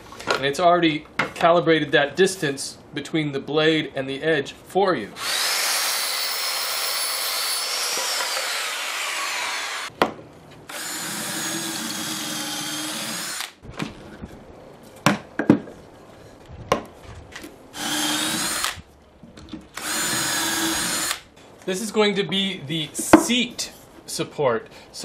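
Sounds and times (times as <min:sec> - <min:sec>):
circular saw cutting wood: 0:05.2 - 0:09.9, 0:10.7 - 0:13.6, 0:17.8 - 0:18.8, 0:19.8 - 0:21.2
drill boring into wood: 0:05.2 - 0:09.9, 0:10.7 - 0:13.6, 0:17.8 - 0:18.8, 0:19.8 - 0:21.2.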